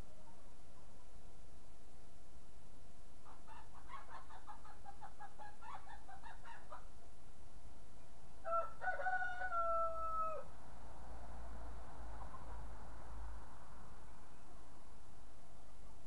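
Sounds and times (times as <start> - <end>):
rooster crowing: 8.4 - 10.5.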